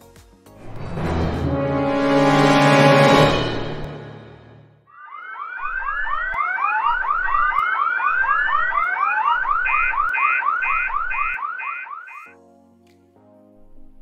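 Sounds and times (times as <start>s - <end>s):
rising siren wail: 0.6s - 12.4s
alarm siren whooping: 4.9s - 12.4s.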